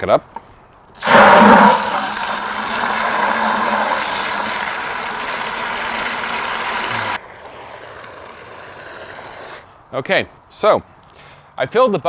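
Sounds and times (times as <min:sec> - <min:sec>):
hose water splashing into bucket: 0:01.0 - 0:09.6.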